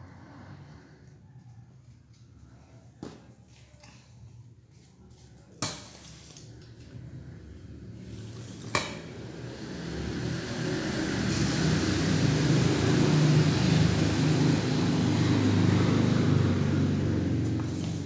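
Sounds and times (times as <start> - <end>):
vehicle engine running: 7.4 - 18.0.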